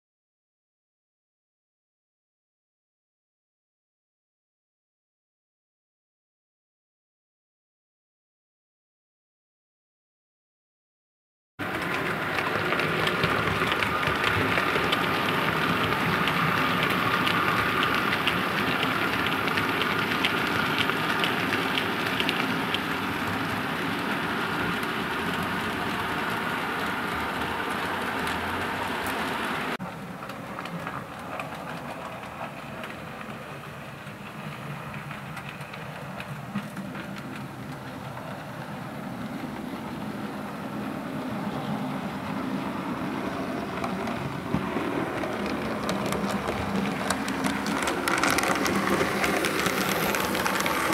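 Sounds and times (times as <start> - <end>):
rapid wheel clicking: 11.6 - 38.9, 43.1 - 50.9
model train hum: 11.6 - 50.9.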